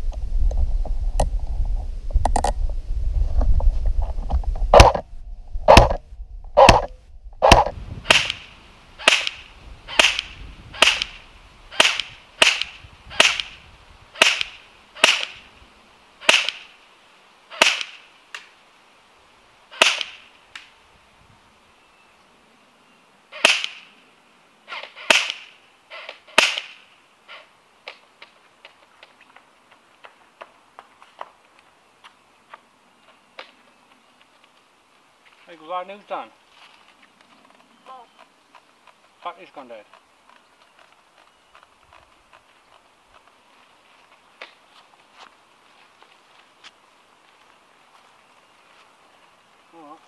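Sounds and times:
airsoft rifle shots: 4.7 - 5.0, 5.7 - 6.0, 6.6 - 13.6, 14.2 - 15.4, 16.2 - 16.7, 17.5 - 18.0, 19.8 - 20.2, 23.4 - 23.9, 24.7 - 26.8.

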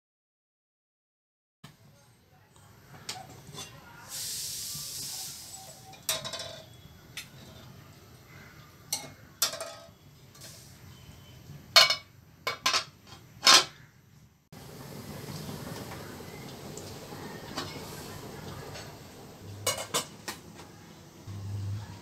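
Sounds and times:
brief hiss: 4.0 - 5.9, 10.4 - 11.0
metal pot and lid clanking: 5.7 - 7.7, 8.9 - 10.5, 11.7 - 13.8, 19.6 - 20.4.

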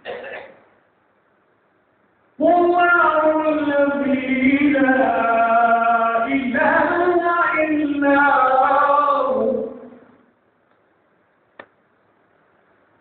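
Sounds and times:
man reciting melodically: 2.4 - 10.2.

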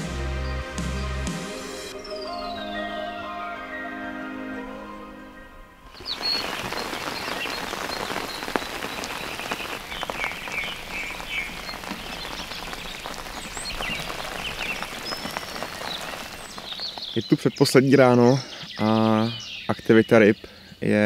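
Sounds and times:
birds chirping: 0.0 - 21.0
water pattering and dripping: 5.9 - 18.1.

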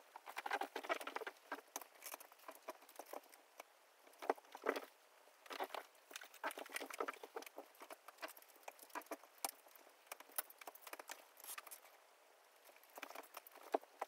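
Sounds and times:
small clicks taps and rustles: 0.1 - 12.0, 12.6 - 14.0.

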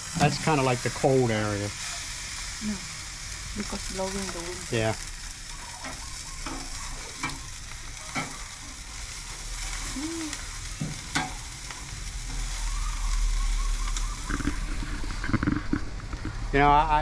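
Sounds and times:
chicken sizzling over charcoal: 0.0 - 17.0
low rumble: 11.5 - 17.0.

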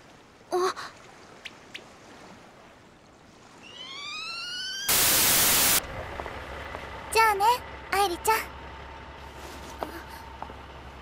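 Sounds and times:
loud burst of hiss: 4.9 - 5.8.

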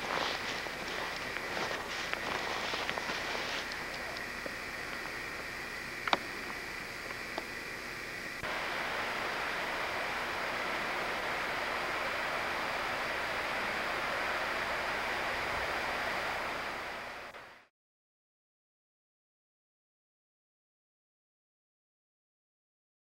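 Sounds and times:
steady background hiss: 0.0 - 17.7
faint click: 6.0 - 7.5.

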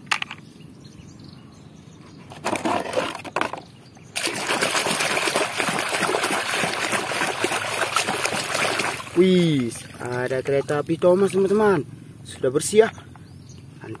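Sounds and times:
muddy water splashing: 4.1 - 11.8.

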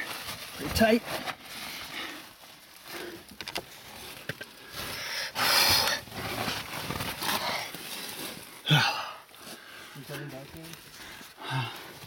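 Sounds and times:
clothing scraping against rock: 0.0 - 8.6.

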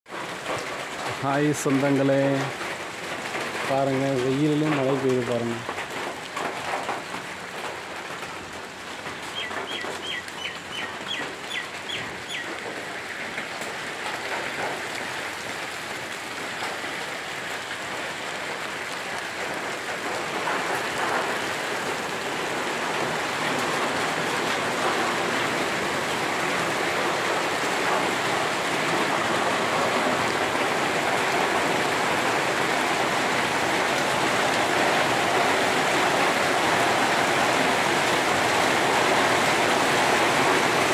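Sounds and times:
rain falling on road and foliage: 0.1 - 40.9
bird chirping: 9.3 - 12.5.

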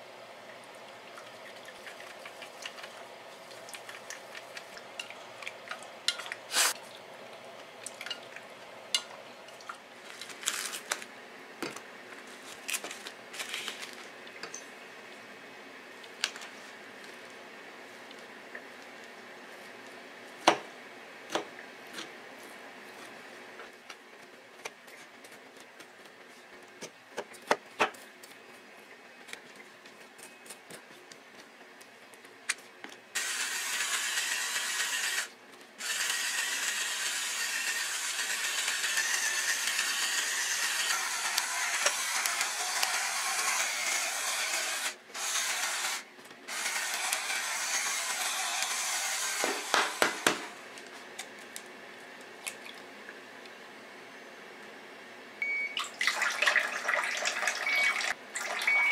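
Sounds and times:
pepper mill grinding: 35.8 - 49.5.

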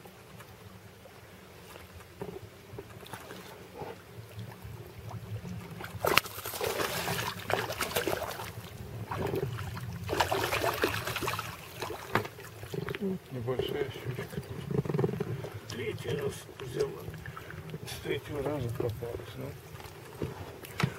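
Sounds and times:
water splashing: 0.0 - 20.9
fish thrashing in water: 5.0 - 20.9.

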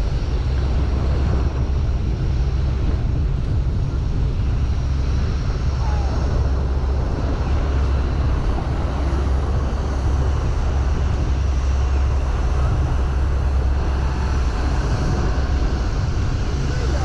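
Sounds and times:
boat engine droning: 0.0 - 17.0
water rushing: 0.0 - 17.0.

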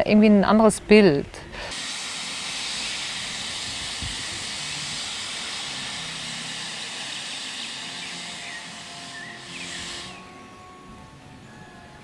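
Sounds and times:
mist nozzles hissing: 1.7 - 10.3.

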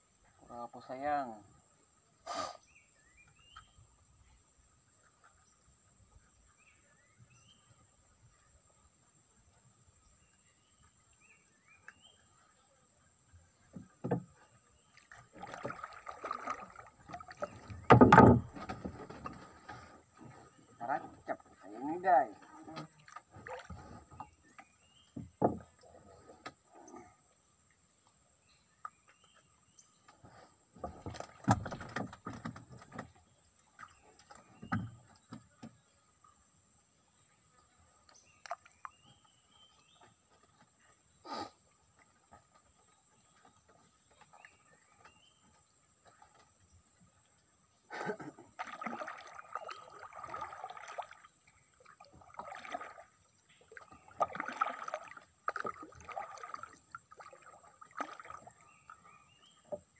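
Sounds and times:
knocks and rustles in boat: 13.2 - 26.8, 28.7 - 36.2, 37.1 - 41.2, 41.8 - 59.9
paddle splashing in water: 13.3 - 27.0, 27.7 - 59.9.

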